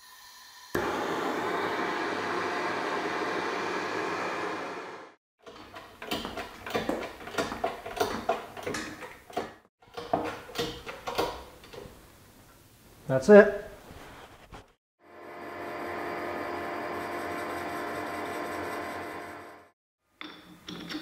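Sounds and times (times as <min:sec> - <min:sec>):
gas torch hissing: 0:00.0 - 0:05.2.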